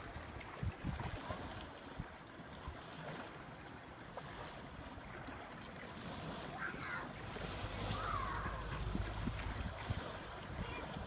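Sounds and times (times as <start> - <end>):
wind on microphone: 0.0 - 3.2, 7.2 - 11.0
waves lapping against concrete: 0.0 - 11.0.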